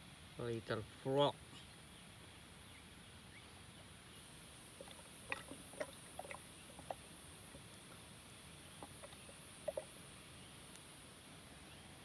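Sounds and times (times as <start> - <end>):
high insect hum: 0.0 - 12.0
small water splashes and drips: 4.7 - 10.9.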